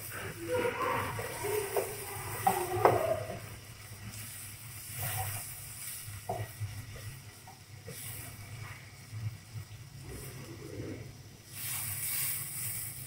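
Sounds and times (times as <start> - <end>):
onions sizzling in oil: 0.0 - 13.0
spatula scraping pan: 0.1 - 8.9.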